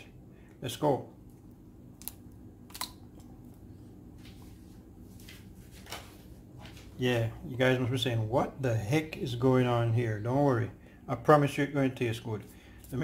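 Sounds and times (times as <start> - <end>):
soft rustles: 4.1 - 7.0.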